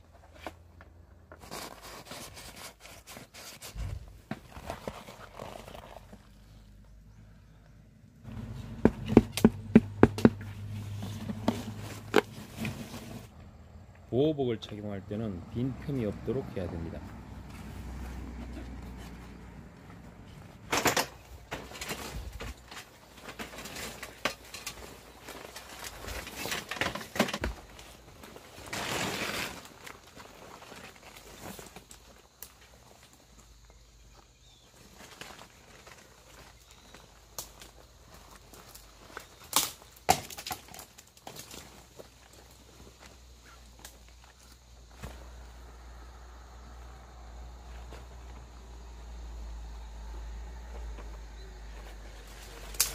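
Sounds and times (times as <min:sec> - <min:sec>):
knocks on ladder rungs: 0:08.6 - 0:10.5
branches rustling: 0:17.3 - 0:45.6.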